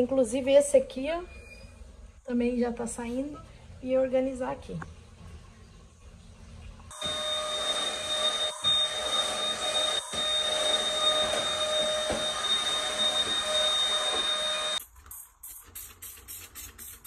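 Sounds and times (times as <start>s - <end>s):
stick vacuum cleaner whining: 6.9s - 14.8s.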